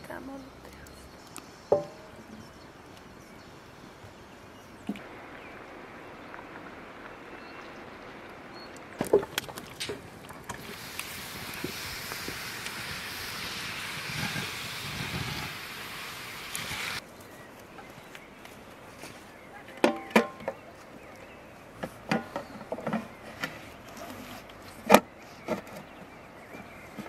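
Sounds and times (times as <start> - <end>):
hot pan sizzling: 10.5 - 17.0.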